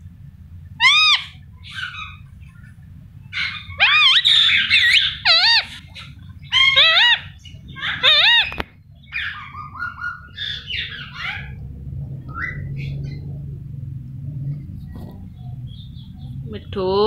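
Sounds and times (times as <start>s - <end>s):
parakeet chirps and chatter: 0.7s - 13.6s, 14.8s - 16.8s
parakeet wavering call: 0.8s - 2.3s, 3.3s - 11.6s, 12.3s - 13.2s.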